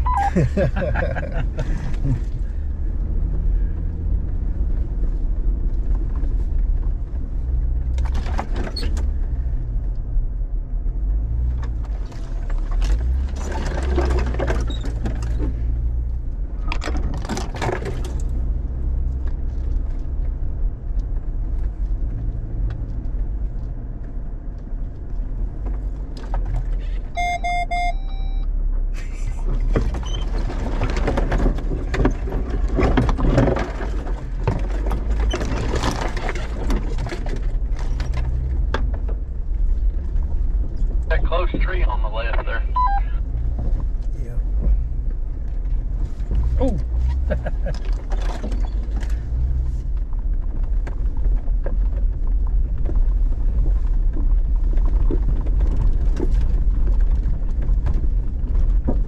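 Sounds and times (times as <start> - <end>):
engine and drivetrain rumble: 0.0 - 59.0
electronic chime: 0.1 - 0.3, 27.2 - 28.4.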